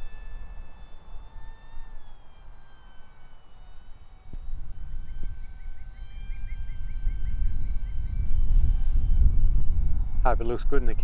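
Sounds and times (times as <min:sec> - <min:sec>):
electric motor and propeller whining: 0:00.0 - 0:11.0
wind rumbling on microphone: 0:03.5 - 0:11.0.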